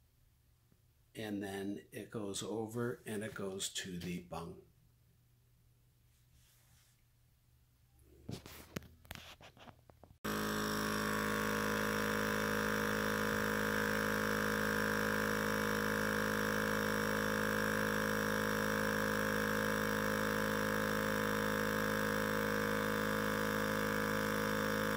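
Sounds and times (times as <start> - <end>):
wine pump motor humming: 10.2 - 24.9.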